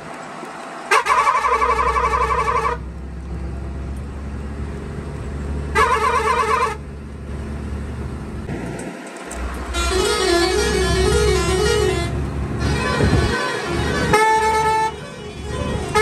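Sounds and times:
diesel engine droning: 0.0 - 16.0
truck horn blasts: 0.9 - 2.9, 5.7 - 6.8, 9.6 - 16.0.

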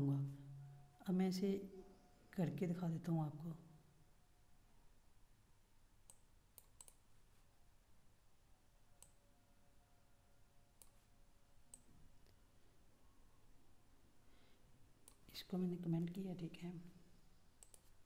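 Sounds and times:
computer mouse clicks: 6.0 - 7.2, 9.0 - 9.2, 10.8 - 11.1, 15.0 - 15.3, 17.6 - 18.0.

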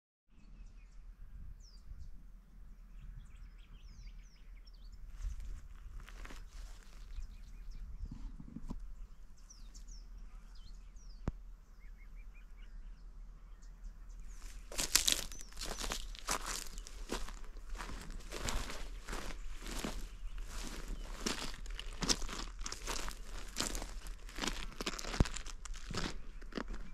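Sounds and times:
wind rumble on microphone: 0.4 - 10.1
birds chirping and calling: 1.6 - 26.9
footsteps on gravel: 5.1 - 7.3, 14.3 - 26.9.

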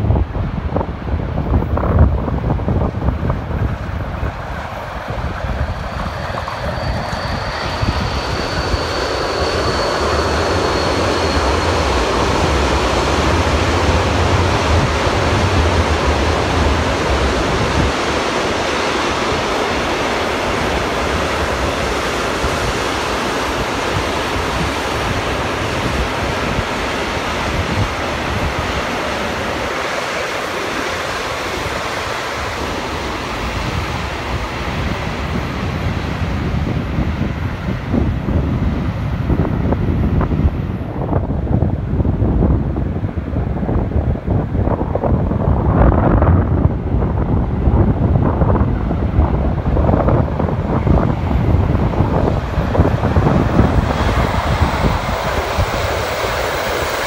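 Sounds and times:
freight train rumbling on rails: 0.0 - 57.0
wind buffeting microphone: 0.0 - 57.0
faint high whine: 5.2 - 17.0.

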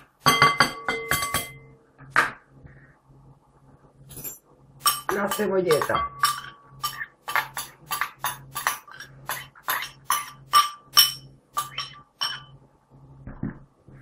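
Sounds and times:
metal spoon scraping ceramic bowl: 4.8 - 12.5.

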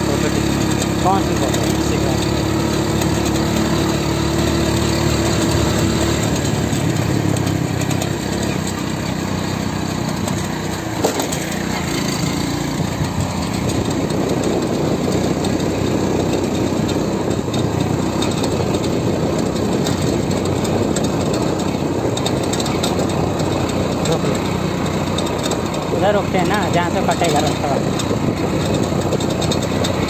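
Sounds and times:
motorcycle engine running: 0.0 - 30.0.

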